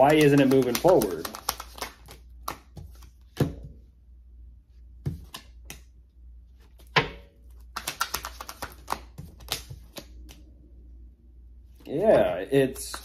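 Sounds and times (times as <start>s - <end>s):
cards being shuffled: 0.0s - 3.5s, 5.0s - 5.8s, 7.5s - 10.5s.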